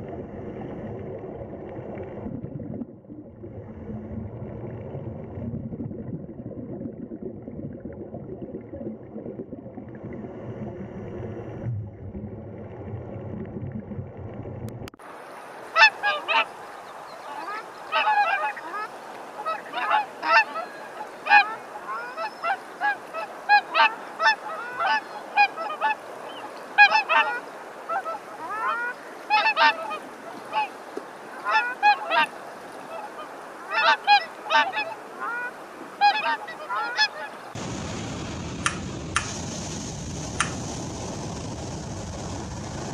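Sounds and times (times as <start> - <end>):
low underwater rumble: 0.0 - 15.0
geese honking: 15.7 - 16.5, 17.1 - 37.5.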